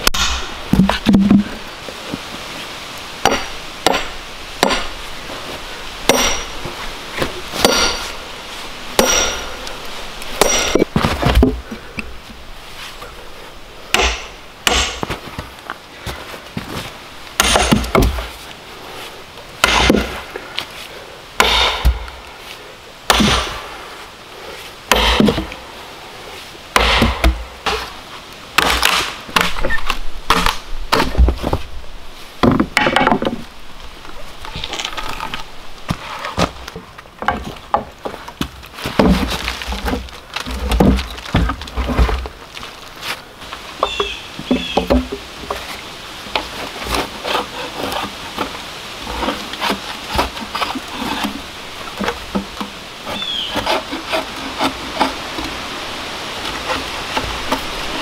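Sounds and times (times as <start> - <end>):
axe striking steel wedges: 0.0 - 1.3, 3.2 - 4.9, 6.1 - 6.6, 7.6 - 8.2, 9.0 - 9.5, 10.4 - 10.9, 13.9 - 15.1, 17.4 - 18.2, 19.6 - 20.2, 21.4 - 22.1, 23.1 - 23.6, 24.9 - 25.5, 26.8 - 27.9.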